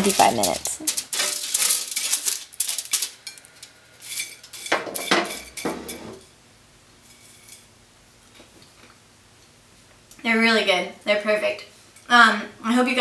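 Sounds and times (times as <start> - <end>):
dry seeds clicking: 0.0 - 4.7.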